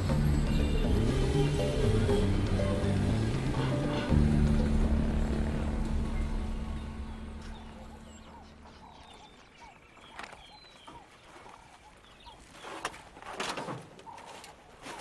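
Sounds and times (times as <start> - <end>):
background music: 0.0 - 9.9
birds chirping: 0.0 - 15.0.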